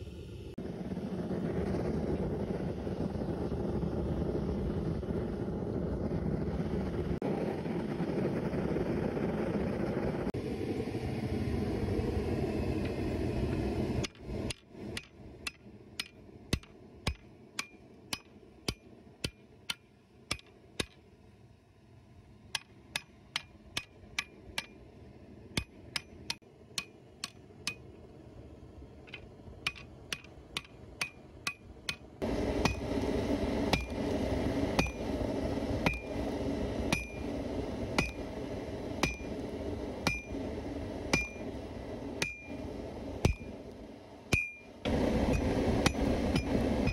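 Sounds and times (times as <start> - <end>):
steady rushing noise: 0.0 - 21.0, 21.7 - 46.9
hammer striking metal on anvil: 15.0 - 21.0, 22.6 - 24.8, 25.6 - 27.9, 29.6 - 32.8, 34.8 - 35.0, 35.8 - 36.1, 36.9 - 37.2, 38.0 - 38.2, 39.0 - 39.3, 40.0 - 40.4, 41.1 - 41.4, 42.2 - 42.5, 43.2 - 43.5, 44.3 - 44.7.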